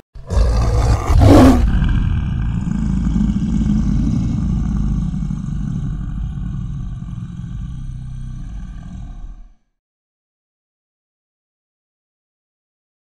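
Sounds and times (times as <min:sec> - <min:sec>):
deep rumbling roar: 0:00.2 - 0:09.8.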